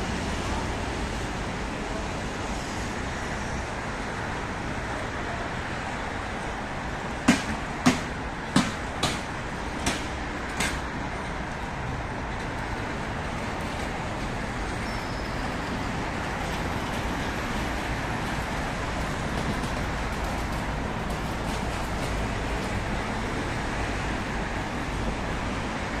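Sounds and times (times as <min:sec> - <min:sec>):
city road traffic: 0:00.0 - 0:26.0
sharp knocks: 0:07.2 - 0:10.8.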